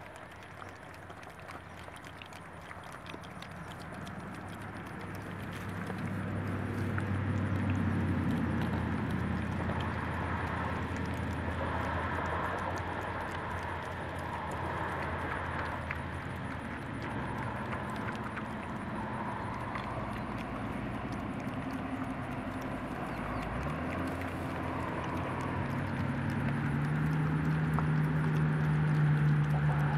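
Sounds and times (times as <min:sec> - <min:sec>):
piglets chewing and snuffling: 0:00.0 - 0:29.9.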